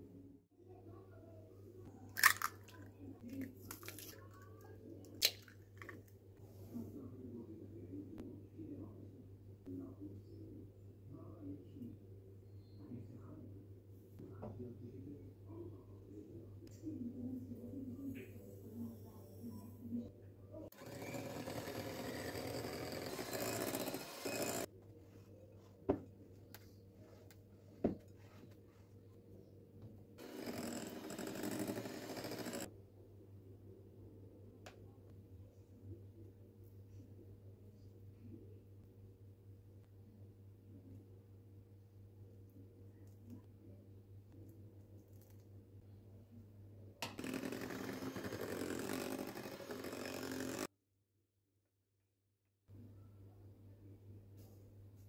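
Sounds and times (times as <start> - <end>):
shells crackling open: 2.2 - 2.6
eggshell cracking: 2.2 - 2.8, 5.2 - 6.0
electric hand mixer beating: 20.8 - 24.7, 30.2 - 32.7, 47.1 - 50.7.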